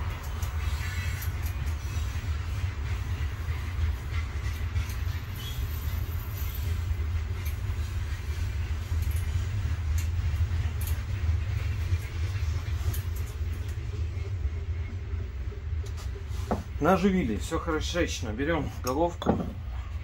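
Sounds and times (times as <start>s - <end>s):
steady low rumble: 6.8s - 20.0s.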